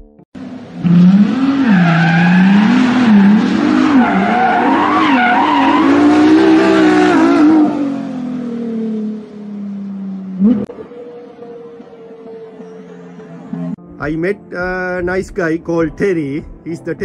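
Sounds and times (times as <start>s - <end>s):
car engine revving: 0.4s - 13.8s
tyres squealing: 1.6s - 7.4s.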